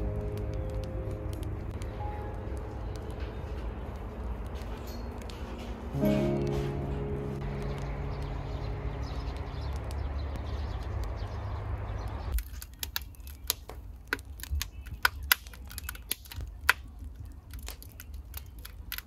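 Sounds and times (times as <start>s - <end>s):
firewood crackling and popping: 0.0s - 19.0s
steady low wash: 5.9s - 12.0s.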